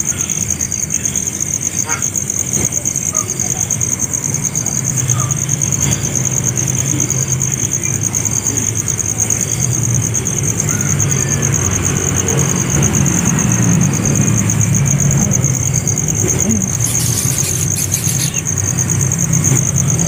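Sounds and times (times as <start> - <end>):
high-pitched pulsing insect trill: 0.0 - 20.0
faint short chirps: 16.5 - 18.4.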